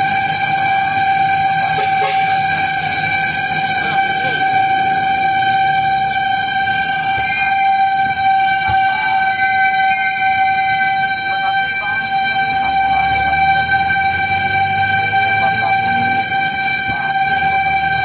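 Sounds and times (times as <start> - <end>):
fire engine horn steady tone: 0.0 - 18.0
truck engine rumble: 0.0 - 18.0.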